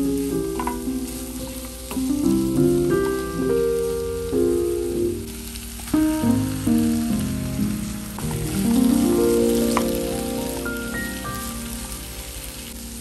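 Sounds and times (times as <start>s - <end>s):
background music of held notes: 0.0s - 13.0s
vegetables sizzling in a pan: 0.0s - 13.0s
wooden spatula stirring: 0.6s - 2.1s.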